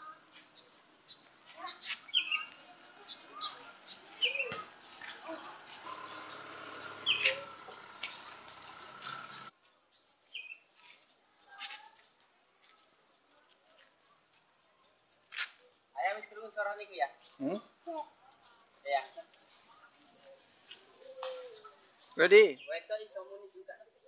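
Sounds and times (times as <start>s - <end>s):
short high bird chirps: 3.3s - 9.4s.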